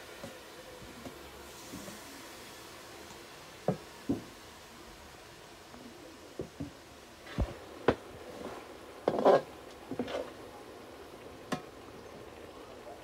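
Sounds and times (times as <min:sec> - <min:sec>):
spatula scraping a pan: 0:08.3 - 0:10.3.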